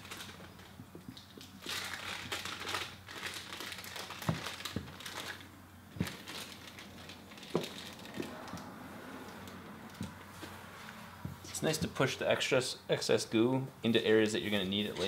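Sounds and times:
squeegee scraping wet film: 0.0s - 11.9s.

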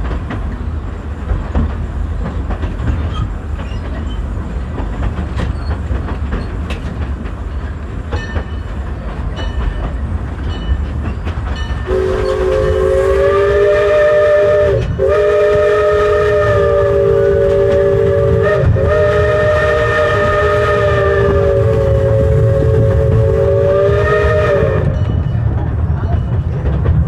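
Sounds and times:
low rumble of moving train: 0.0s - 27.0s
steam locomotive chime whistle: 11.6s - 25.4s.

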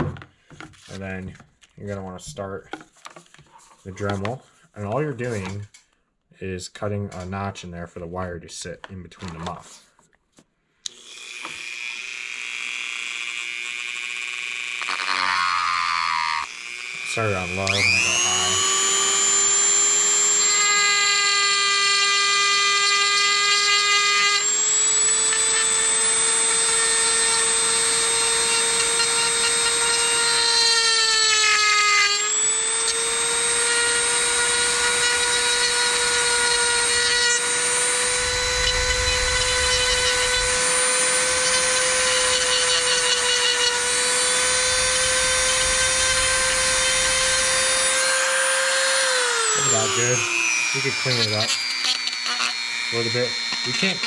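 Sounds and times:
rotary tool high-pitched whine: 10.9s - 54.0s.

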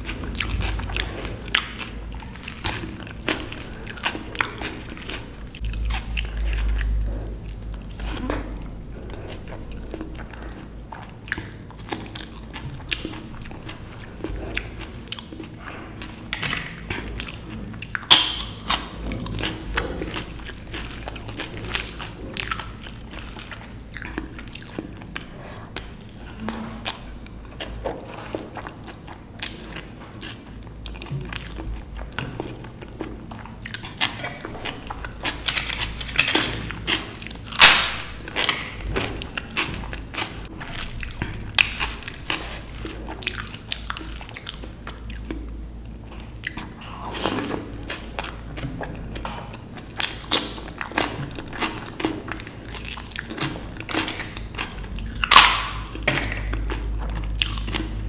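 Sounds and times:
wet chewing and mouth sounds: 0.0s - 58.0s
sharp food crunches: 16.4s - 25.3s, 35.2s - 45.3s, 46.4s - 58.0s.

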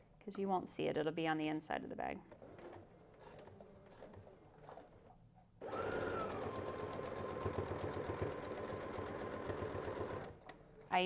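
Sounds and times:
sewing machine stitching: 2.3s - 10.5s.

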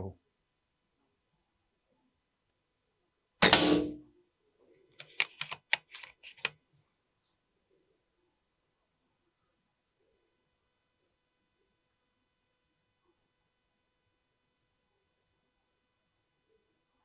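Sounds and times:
air rifle shot: 3.4s - 4.0s.

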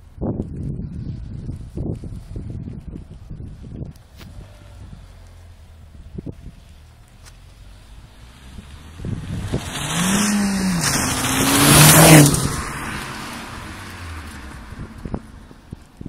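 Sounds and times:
car accelerating past: 7.9s - 15.6s.

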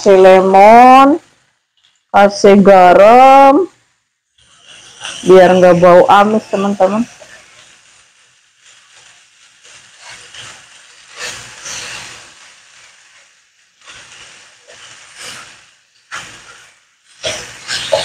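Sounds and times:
meat and onions sizzling: 0.0s - 18.0s
wooden spatula scraping pan: 8.6s - 18.0s.

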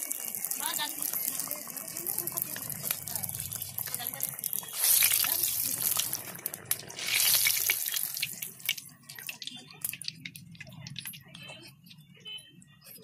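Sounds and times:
food sizzling in hot oil: 0.0s - 10.2s.

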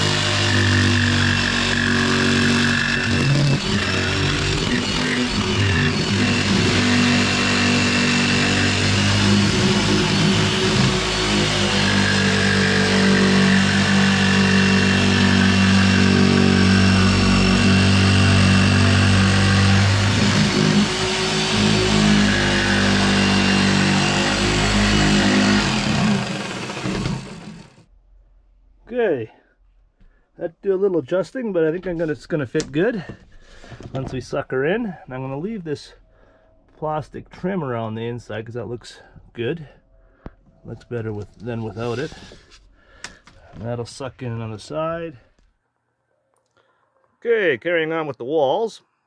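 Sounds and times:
jigsaw cutting plywood: 0.0s - 27.8s, 41.5s - 42.4s.

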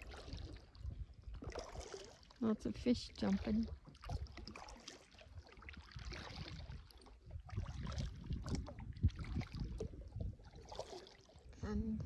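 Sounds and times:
paddle strokes splashing in water: 0.0s - 11.6s.

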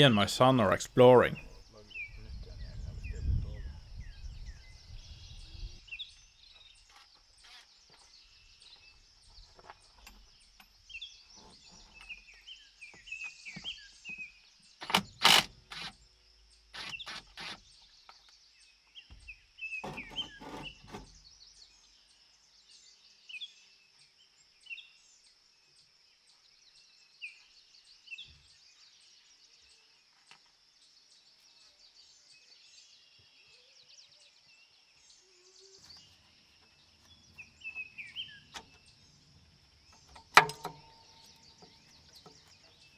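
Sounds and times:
small birds chirping: 0.0s - 42.9s
knocks and rattles on tractor: 14.8s - 15.8s, 19.2s - 21.3s, 37.3s - 42.9s.

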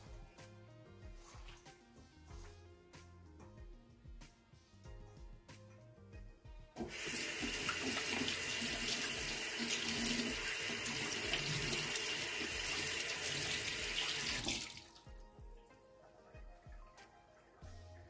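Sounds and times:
tap water running into sink: 6.8s - 15.2s.

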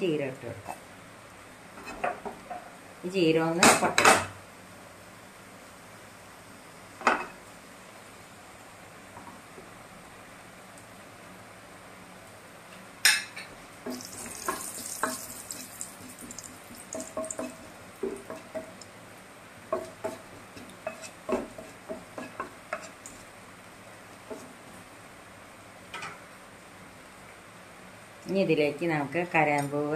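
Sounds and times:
seeds sizzling in hot oil: 13.8s - 24.7s
spatula scraping and tapping pan: 13.9s - 18.8s, 19.7s - 23.3s, 24.2s - 24.6s.

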